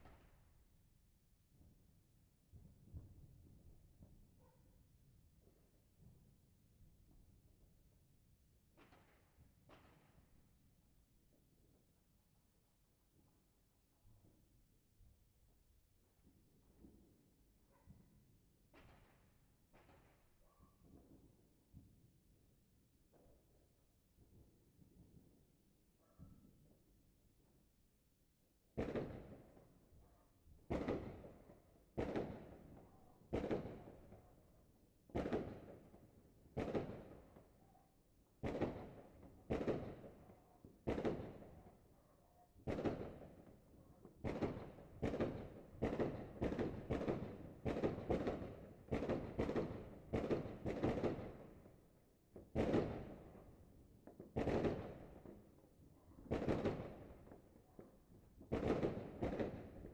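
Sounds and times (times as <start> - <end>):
fireworks bangs echoing: 52.6 - 53.3.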